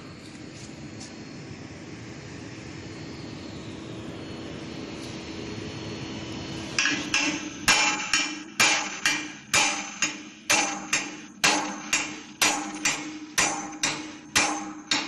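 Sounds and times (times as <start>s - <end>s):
hammer clanging on steel: 6.8s - 15.0s.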